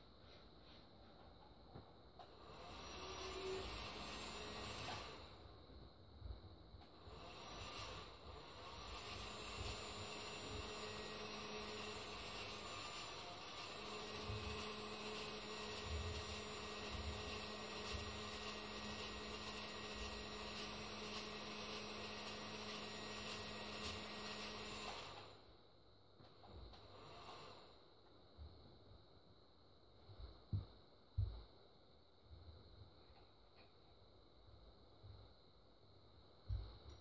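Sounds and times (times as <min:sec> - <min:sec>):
small electric motor running: 0:02.4 - 0:05.2, 0:07.1 - 0:25.4.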